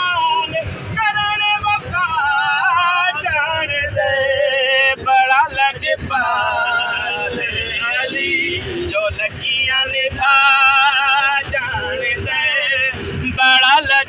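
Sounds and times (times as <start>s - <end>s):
bus rumble: 0.0s - 14.0s
man singing long held notes: 0.0s - 14.0s.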